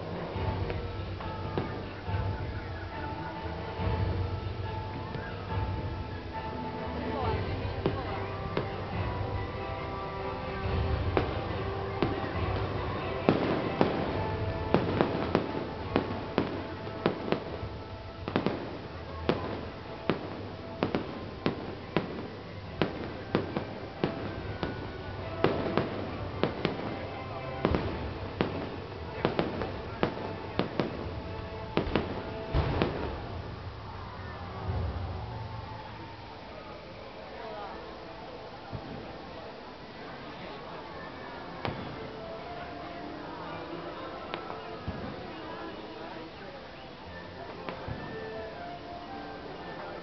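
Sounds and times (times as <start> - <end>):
fireworks banging: 0.0 - 36.0
background music: 0.0 - 50.0.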